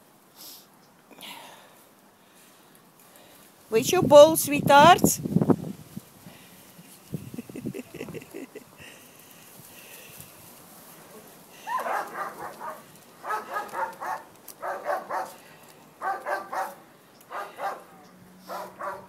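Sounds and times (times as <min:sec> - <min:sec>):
dog barking: 0:11.7 - 0:15.4, 0:16.0 - 0:19.0.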